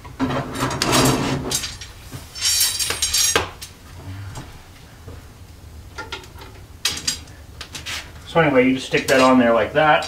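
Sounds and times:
iron pieces clanking and scraping: 0.2 - 3.7, 6.0 - 7.9.

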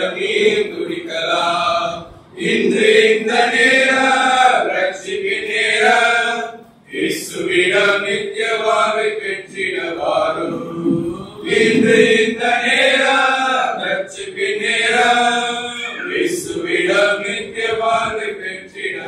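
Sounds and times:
men singing together: 0.0 - 19.0
man singing into microphone: 7.0 - 19.0.

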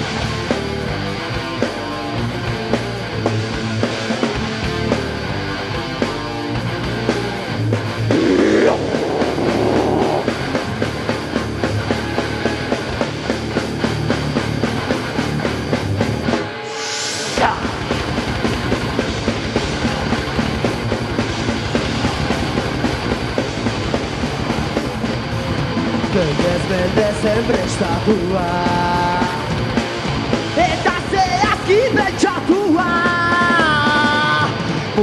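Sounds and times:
live rock band playing: 0.0 - 35.0
high sound falling in pitch: 8.1 - 10.3.

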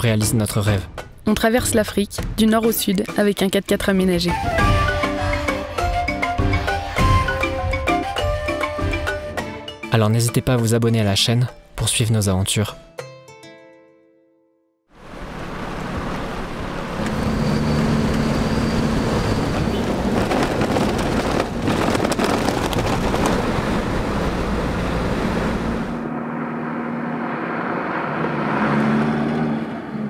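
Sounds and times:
wind: 14.9 - 30.0
vehicle engine and tyre noise: 15.0 - 30.0
vehicle jolts and knocks: 19.6 - 24.4
vehicle driving past: 23.6 - 30.0.

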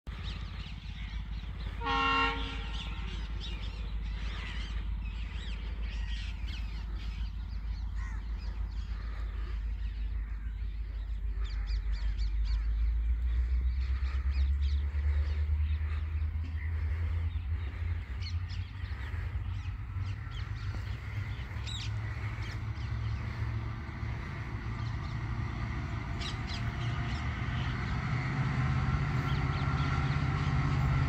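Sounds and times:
steady low rumble: 0.0 - 31.0
train horn: 1.7 - 3.2
crows cawing: 7.8 - 23.6.

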